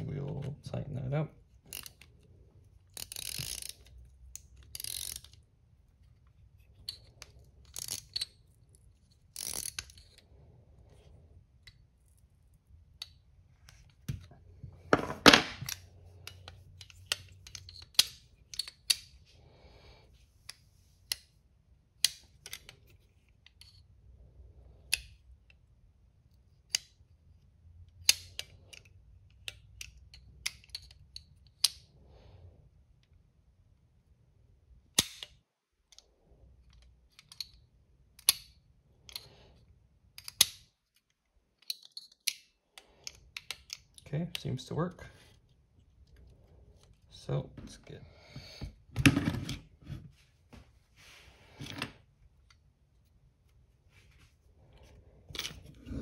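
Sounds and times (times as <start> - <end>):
small metal tools clicking and scraping: 1.5 - 19.3, 22.0 - 24.0, 27.9 - 32.0, 35.0 - 47.3, 54.8 - 56.0.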